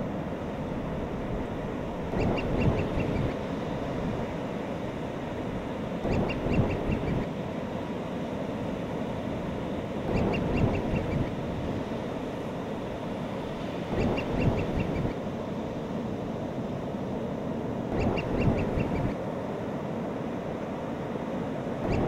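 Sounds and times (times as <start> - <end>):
gulls calling: 2.1 - 3.5, 6.0 - 7.3, 10.1 - 11.5, 13.8 - 15.3, 17.9 - 19.2.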